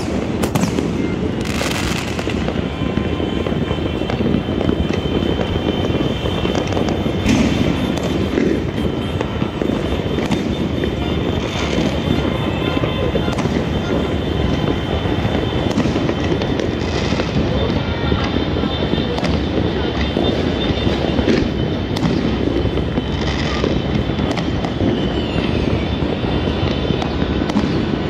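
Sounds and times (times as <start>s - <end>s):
firecrackers crackling and popping: 0.0s - 28.0s
loud firework bangs: 0.0s - 28.0s.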